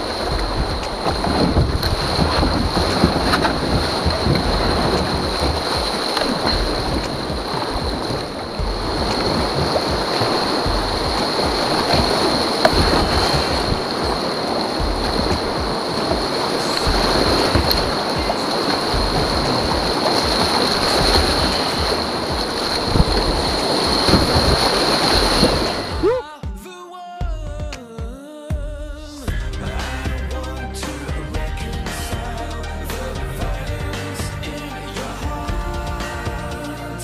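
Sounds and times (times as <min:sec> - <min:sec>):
paddle splashes: 0:00.0 - 0:26.2
river rushing through rapids: 0:00.0 - 0:26.2
wind buffeting microphone: 0:00.0 - 0:26.2.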